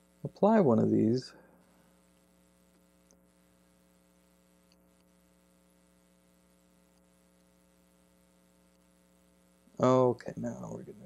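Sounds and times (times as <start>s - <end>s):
faint electrical hum: 0.0s - 11.0s
very faint ticks: 2.1s - 3.3s, 4.6s - 5.2s.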